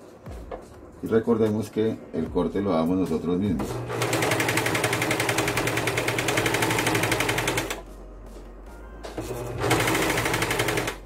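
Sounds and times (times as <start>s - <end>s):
serger stitching: 3.5s - 7.8s, 9.1s - 11.0s.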